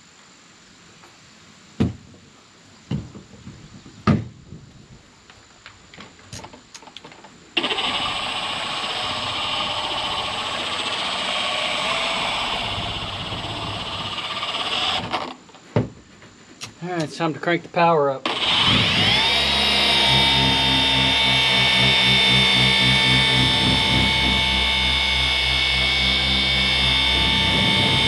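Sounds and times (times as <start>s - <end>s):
polisher running: 7.6s - 15.3s, 18.3s - 28.0s.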